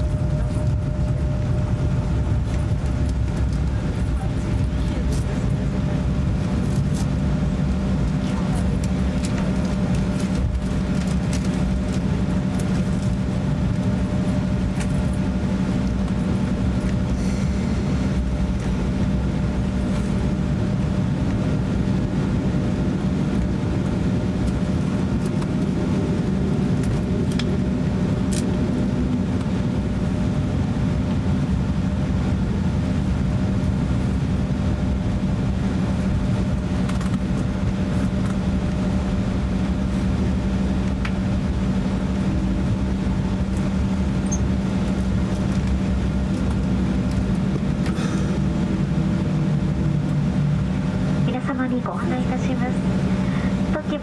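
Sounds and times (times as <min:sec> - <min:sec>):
airliner cabin engine drone: 0:00.0 - 0:54.0.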